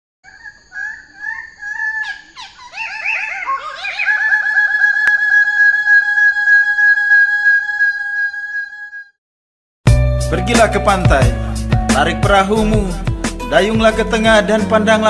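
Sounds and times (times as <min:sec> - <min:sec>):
bird chirping and trilling: 0:00.2 - 0:06.2.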